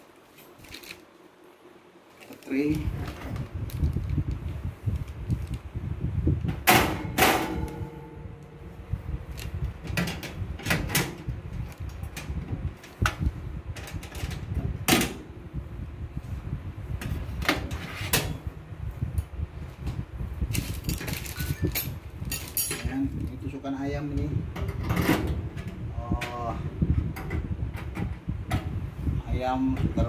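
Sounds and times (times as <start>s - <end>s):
low rumbling handling noise: 2.1s - 30.0s
knocks and metallic clinks: 20.5s - 23.1s.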